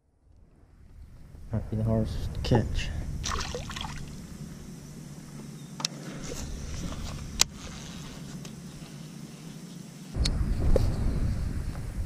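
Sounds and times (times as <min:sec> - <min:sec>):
low rumble: 0:00.0 - 0:05.6, 0:06.2 - 0:08.3, 0:10.2 - 0:12.0.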